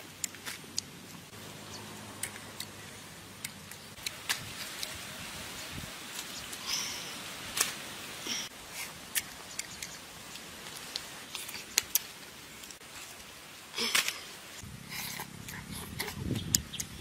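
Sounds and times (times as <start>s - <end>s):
person chewing wet fruit: 0.0s - 5.0s, 14.8s - 17.0s.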